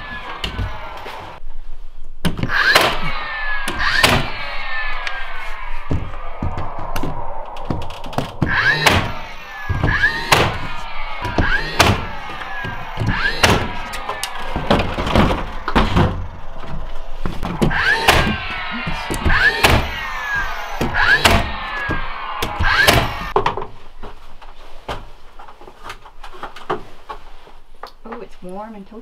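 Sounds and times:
nailer motor whirring: 0.0s - 1.4s, 2.3s - 23.4s
nail gun shots: 2.4s - 3.1s, 3.7s - 4.3s, 13.2s - 13.8s.

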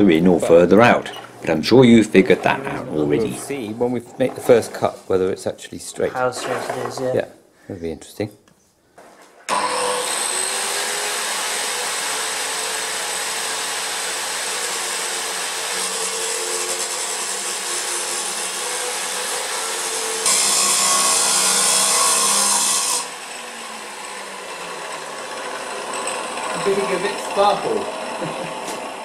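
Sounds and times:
angle grinder cutting steel pipe: 9.5s - 29.0s.

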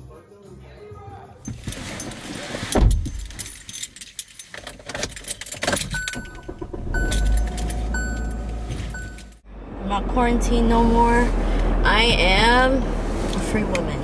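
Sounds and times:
keys jangling: 1.4s - 9.4s
car chime beeping: 5.8s - 9.4s
low engine rumble: 6.0s - 14.0s.

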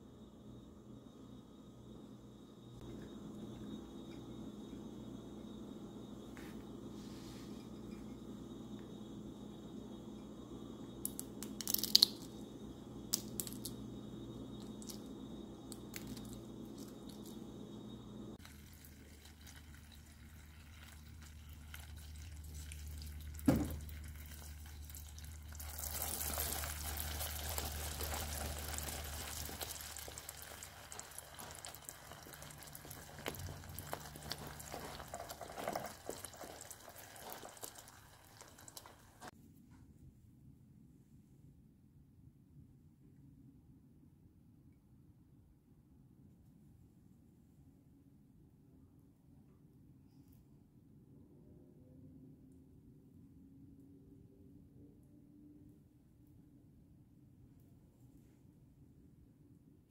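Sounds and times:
sugar syrup boiling: 0.0s - 39.3s.

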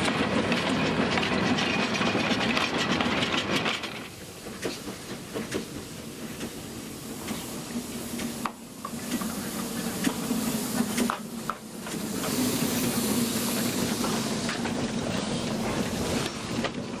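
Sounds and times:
steam locomotive rolling: 0.0s - 17.0s
steam hissing: 0.2s - 17.0s.

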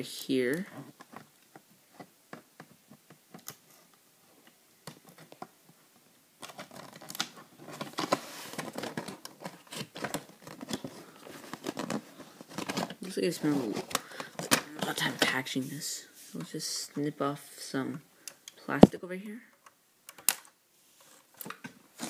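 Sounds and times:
plastic packaging crinkling: 6.4s - 15.3s.

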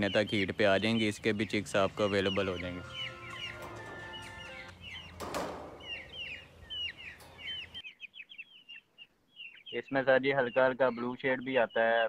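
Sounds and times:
faint held musical tones: 0.0s - 5.1s
chicks peeping: 0.0s - 12.0s.

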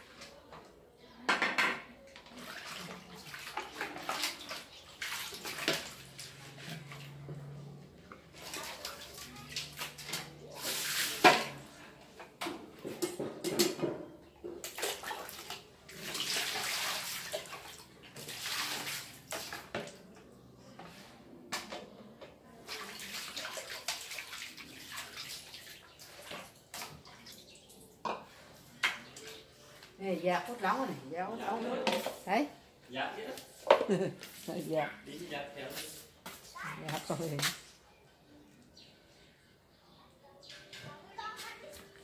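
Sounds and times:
water splashing: 2.3s - 7.3s, 8.3s - 11.7s, 14.6s - 19.7s, 22.6s - 27.9s
water pouring into steel basin: 8.3s - 11.6s, 14.7s - 19.7s, 22.6s - 27.9s.

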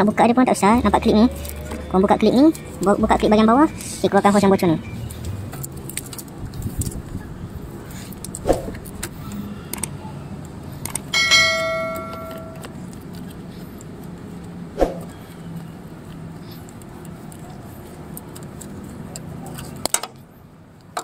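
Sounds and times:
bright bell-like chime: 11.2s - 12.7s.

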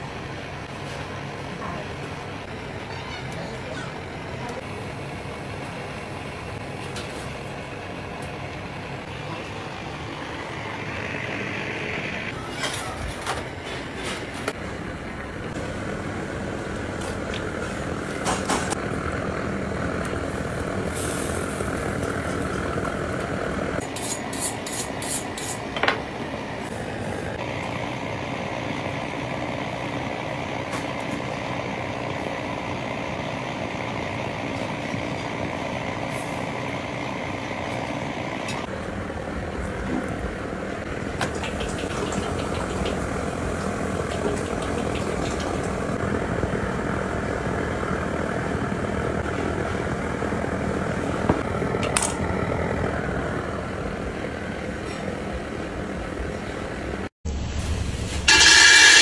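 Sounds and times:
kitchen equipment running: 38.4s - 56.8s, 57.5s - 59.0s.

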